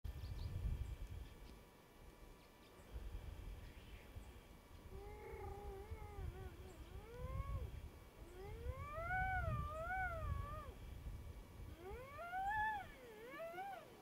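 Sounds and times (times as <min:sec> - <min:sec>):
wind rumble on microphone: 0:00.1 - 0:01.5, 0:02.9 - 0:14.0
wavering animal cries: 0:04.9 - 0:10.8, 0:11.7 - 0:14.0.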